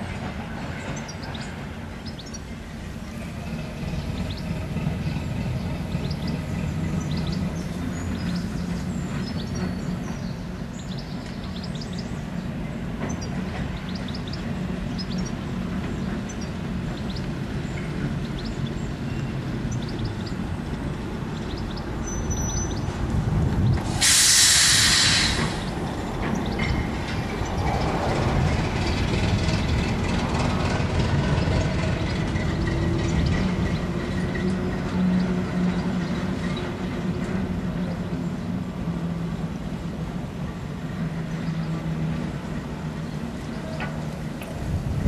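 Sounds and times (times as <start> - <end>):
diesel locomotive engine drone: 0.0 - 45.0
loud hiss: 23.8 - 25.9
wheels clanking and ticking: 25.4 - 37.4.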